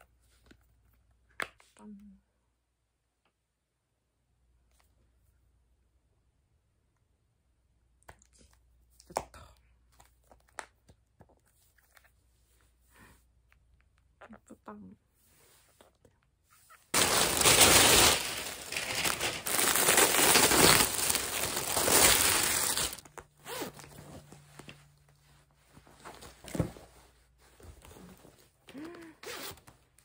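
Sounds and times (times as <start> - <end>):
clothing rustling: 16.9 - 28.6.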